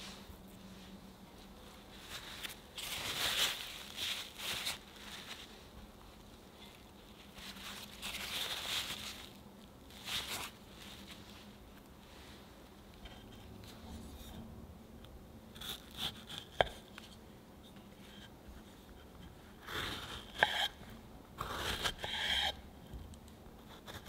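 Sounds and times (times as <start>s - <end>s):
paper towel crinkling: 1.6s - 11.6s.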